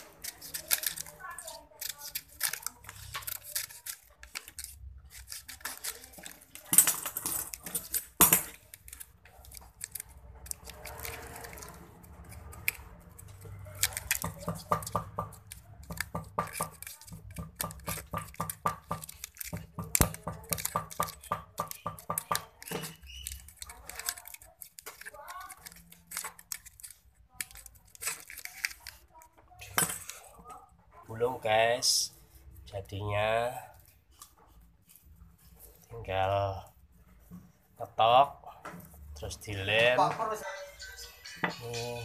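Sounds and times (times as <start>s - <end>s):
hand tools tapping on metal: 39.9s - 42.0s.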